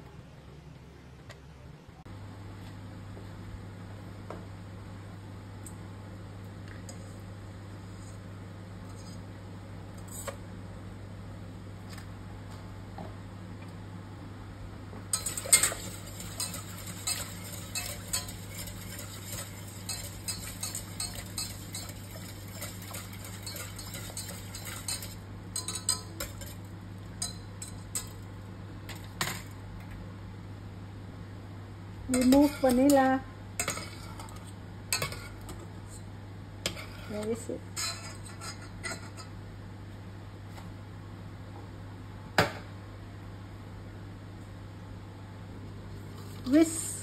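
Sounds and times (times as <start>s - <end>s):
steady low hum: 0.0s - 47.0s
whisk scraping a metal pan: 15.2s - 26.6s, 37.8s - 39.2s.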